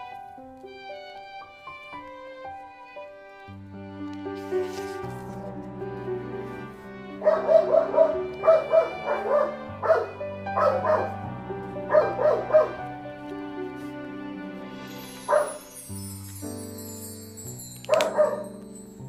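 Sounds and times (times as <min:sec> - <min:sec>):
soft instrumental music: 0:00.0 - 0:19.0
small dog yapping: 0:07.2 - 0:11.2, 0:11.9 - 0:12.8.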